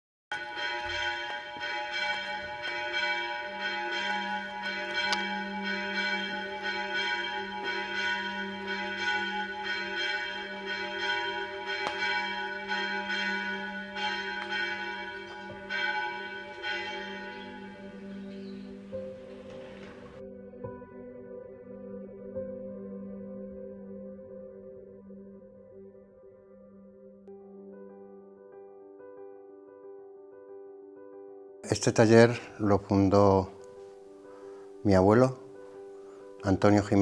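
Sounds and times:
church bells pealing: 0.3s - 20.3s, 31.8s - 37.0s.

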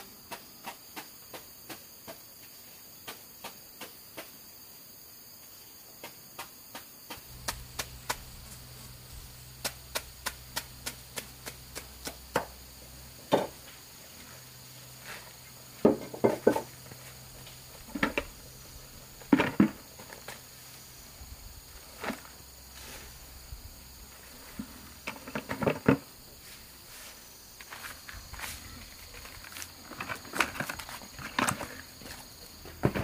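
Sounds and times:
sharp ticks and clicks: 7.2s - 8.7s, 9.5s - 12.6s.

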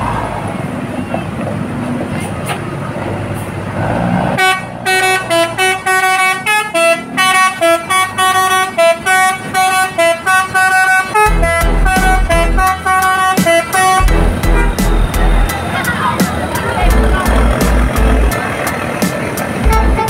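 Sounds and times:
musical bus air horn melody: 4.4s - 15.8s, 19.5s - 20.0s
low pulsing beat: 11.3s - 15.6s, 16.2s - 18.4s, 19.1s - 20.0s.

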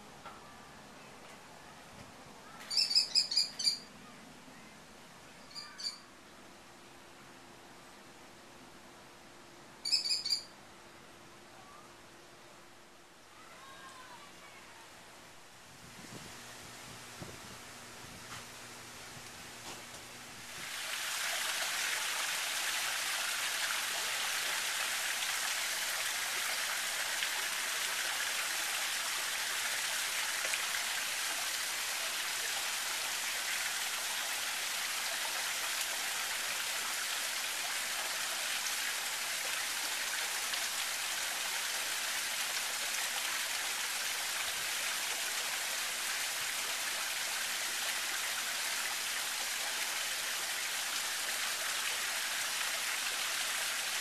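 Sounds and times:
water spraying and falling: 16.0s - 54.0s.

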